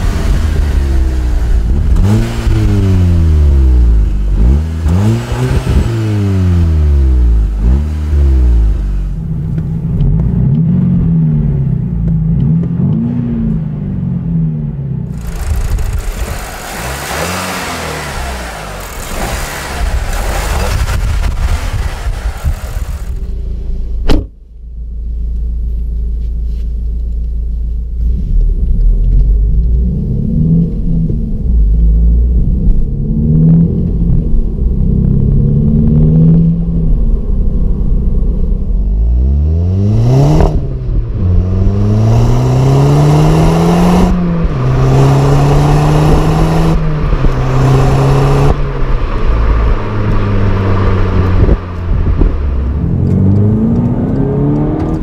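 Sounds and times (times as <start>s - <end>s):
car engine accelerating through gears: 0.0s - 23.4s, 28.0s - 55.0s
rushing noise: 15.1s - 23.5s.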